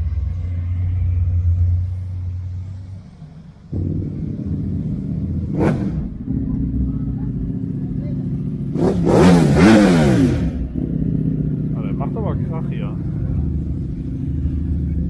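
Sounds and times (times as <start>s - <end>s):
cars rolling past with deep rumble: 0.0s - 15.0s.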